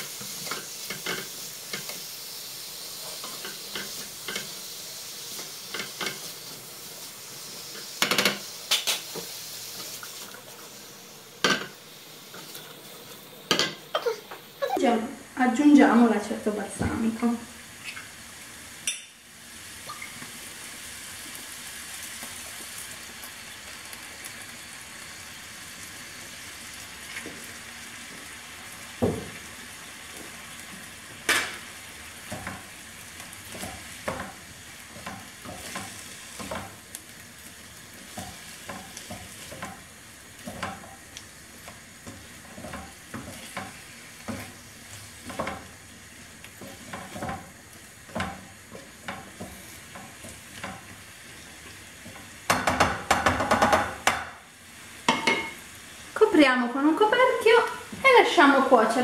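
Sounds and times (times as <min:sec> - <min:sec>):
food sizzling in a frying pan: 0:00.0 - 0:59.0
wooden spoon scraping a pan: 0:33.4 - 0:36.8, 0:38.0 - 0:41.0, 0:41.6 - 0:52.4.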